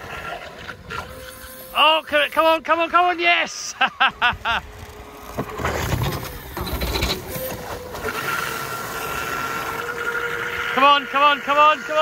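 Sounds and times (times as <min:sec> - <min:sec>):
motor and jet pump whine: 0:00.0 - 0:12.0
water spray rushing: 0:07.3 - 0:11.0.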